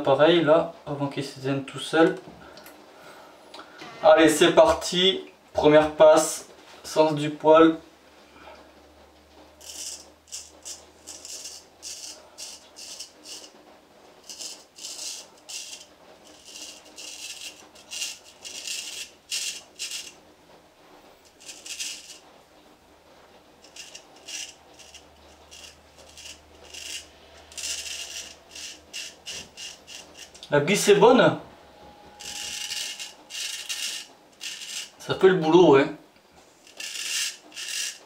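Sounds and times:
razor scraping beard stubble: 9.6 - 13.6, 14.2 - 20.2, 21.3 - 22.2, 23.6 - 30.5, 32.2 - 35.0, 36.6 - 38.0.

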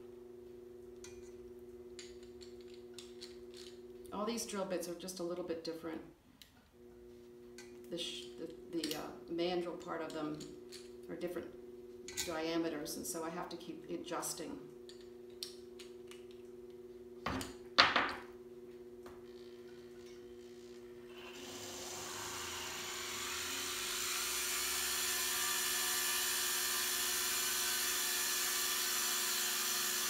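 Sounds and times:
drill bit grinding into stone: 21.2 - 30.0.

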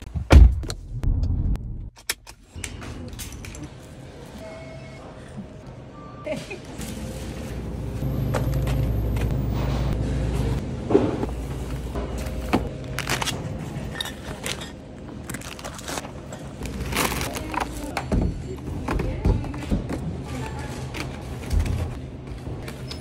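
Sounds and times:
groceries clicking and rustling: 12.2 - 22.8.

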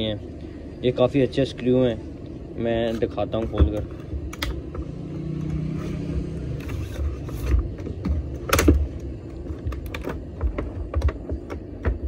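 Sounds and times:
low background rumble: 0.0 - 12.0
low hum: 0.0 - 12.0
plastic snapping: 3.7 - 4.6.

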